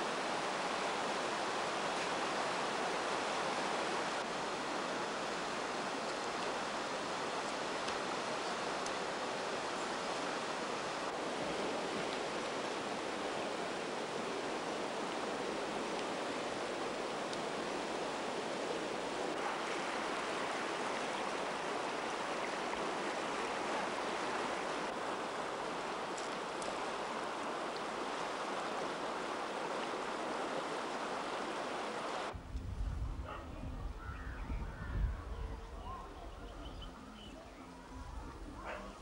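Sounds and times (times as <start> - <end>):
rushing river water: 0.0 - 32.4, 35.0 - 39.0
faint chirping calls: 33.3 - 39.0.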